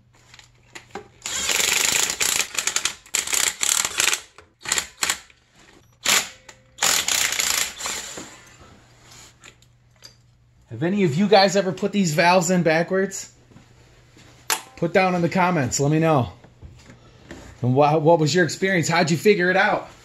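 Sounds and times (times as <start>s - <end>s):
cordless drill rattling: 1.2s - 5.3s, 6.0s - 8.4s.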